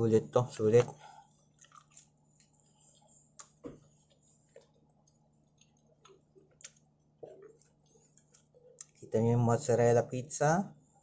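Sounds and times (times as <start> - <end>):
faint clicks of eating: 0.7 - 9.2.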